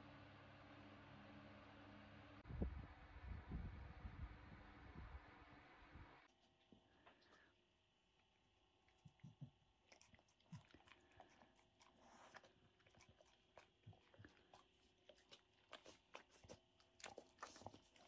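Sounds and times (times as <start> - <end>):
dog crunching food: 8.9 - 18.0.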